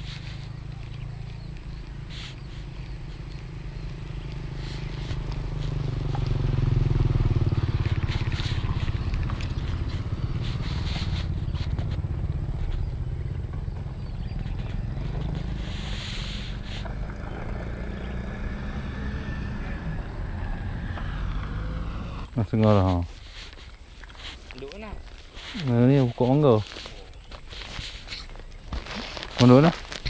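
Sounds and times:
vehicle engine passing by: 0.0 - 22.6.

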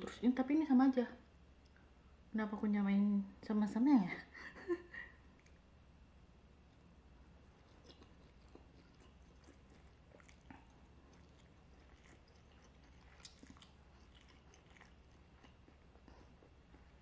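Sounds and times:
chewing and slurping noodles: 7.5 - 17.0.

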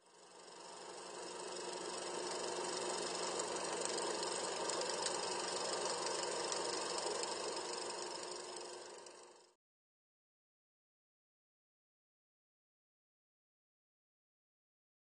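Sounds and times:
film projector whirring: 0.0 - 9.6.

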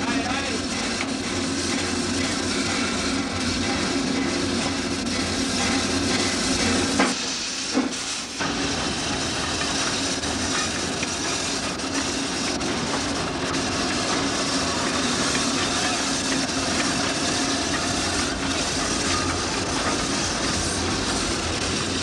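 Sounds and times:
steam hissing: 0.0 - 22.0.

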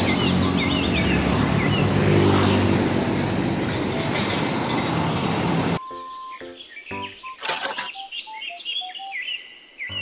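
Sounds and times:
birds chirping: 0.0 - 2.4, 5.8 - 10.0
road traffic: 0.0 - 8.6.

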